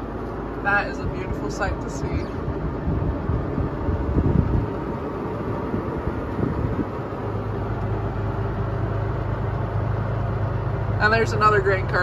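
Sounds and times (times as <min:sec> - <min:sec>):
engine low drone from cab: 0:00.0 - 0:12.0.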